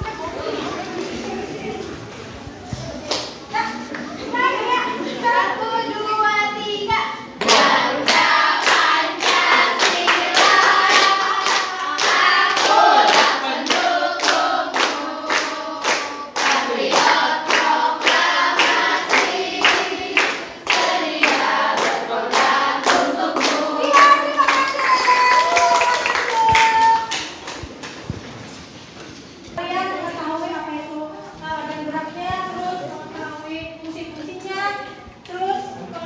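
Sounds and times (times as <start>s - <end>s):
women singing together: 7.4s - 26.7s
hands clapping along: 7.4s - 28.0s.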